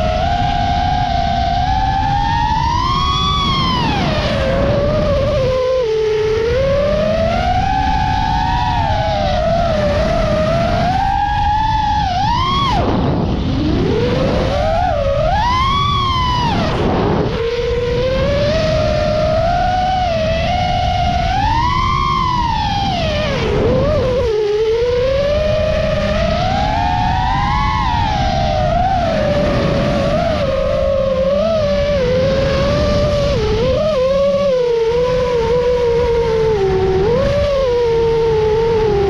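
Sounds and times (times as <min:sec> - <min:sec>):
drone motors whining: 0:00.0 - 0:39.0.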